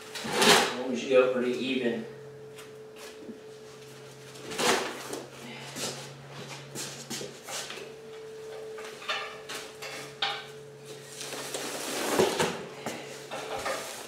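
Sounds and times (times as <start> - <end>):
faint steady hum: 0.0 - 14.0
hide ripping and scraping: 11.2 - 12.6.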